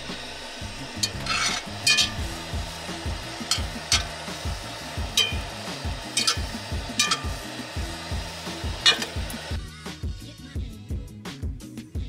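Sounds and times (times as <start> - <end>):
chicken sizzling in a pan: 0.0 - 9.7
background music with beat: 0.0 - 12.0
utensil scraping and clinking pan: 1.0 - 2.6, 3.4 - 4.2, 5.1 - 5.5, 6.2 - 7.6, 8.8 - 9.2.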